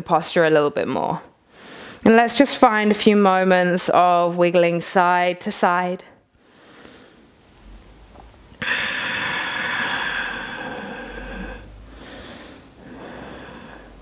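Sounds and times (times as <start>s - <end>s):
soft breaths: 8.6s - 14.0s
woman exhaling: 8.6s - 14.0s.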